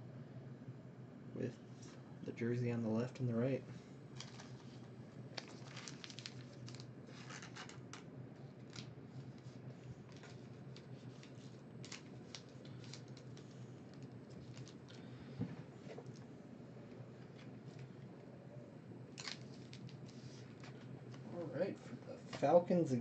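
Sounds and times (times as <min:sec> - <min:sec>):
trading cards scraping and rustling: 0:04.2 - 0:15.0.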